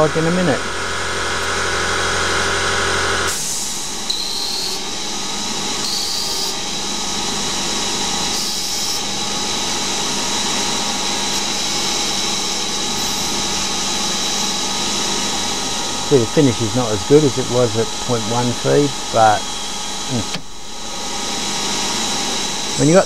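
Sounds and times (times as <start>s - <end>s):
low hum: 0.0s - 4.1s, 14.8s - 23.0s
lathe spindle whine: 0.0s - 23.0s
cutting tool hiss: 3.2s - 7.3s, 8.0s - 23.0s.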